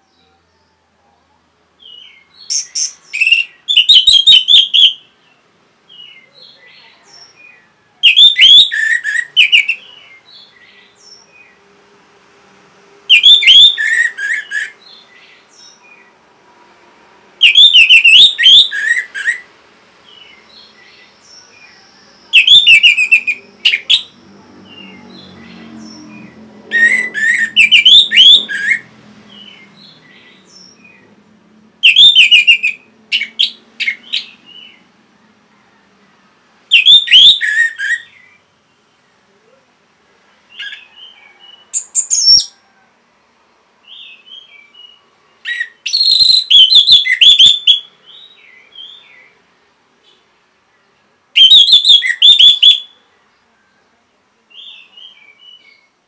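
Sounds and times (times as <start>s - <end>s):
thrush singing whistled notes: 1.9s - 5.1s, 7.4s - 11.6s, 13.1s - 16.1s, 17.4s - 19.5s, 20.1s - 31.1s, 31.8s - 34.8s, 36.7s - 38.4s, 43.9s - 49.3s, 51.4s - 53.0s.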